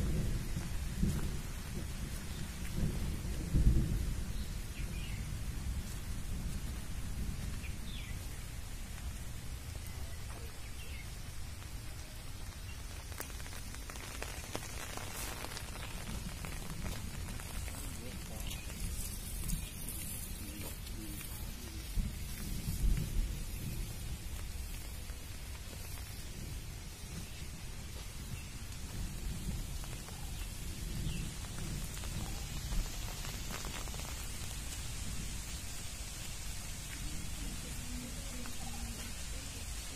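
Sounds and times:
wind buffeting microphone: 0.0 - 9.9, 10.7 - 39.9
outdoor hiss: 0.0 - 39.9
footsteps on leafy dirt path: 12.4 - 37.1.

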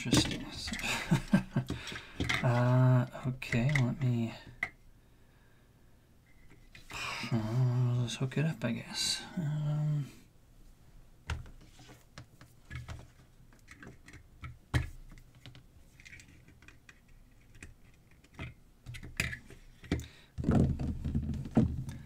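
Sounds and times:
handling knocks and rustle: 0.0 - 2.8.

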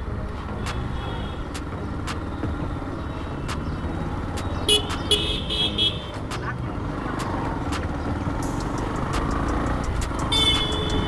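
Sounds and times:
street traffic noise: 0.0 - 11.0
vehicle horn honking: 4.7 - 6.1, 10.3 - 11.0.

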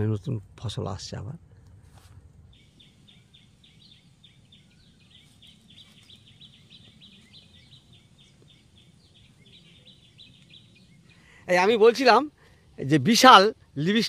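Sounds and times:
low outdoor rumble: 0.0 - 14.0
small bird chirping: 2.4 - 12.2.

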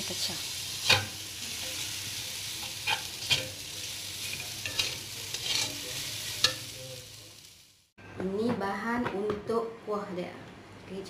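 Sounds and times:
noodles sizzling in a wok: 0.0 - 7.9
spatula scraping and knocking pan: 0.8 - 1.8, 2.6 - 3.6, 4.2 - 5.8.

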